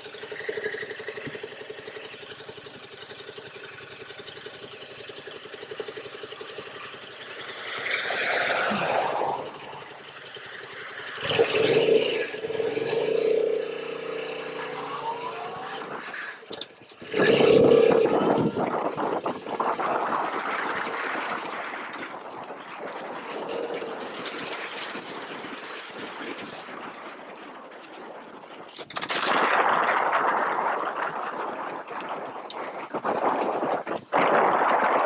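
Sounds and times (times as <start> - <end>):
motorcycle engine revving: 0.0 - 21.6, 22.9 - 25.6
wind rushing over camera: 5.9 - 35.0.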